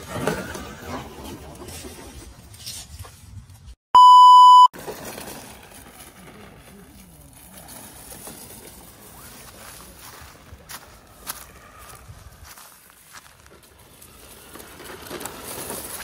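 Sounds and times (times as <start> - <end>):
electronic censor bleep: 4.0 - 4.7.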